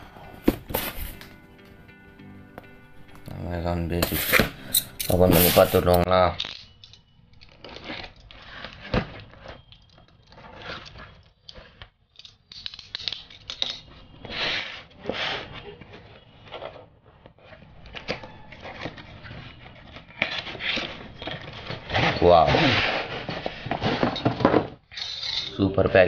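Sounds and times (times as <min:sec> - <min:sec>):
cardboard scraping and tearing: 0:04.0 - 0:06.0, 0:07.6 - 0:09.7, 0:14.2 - 0:24.8
knife slitting packing tape: 0:07.4 - 0:15.6, 0:17.4 - 0:23.4.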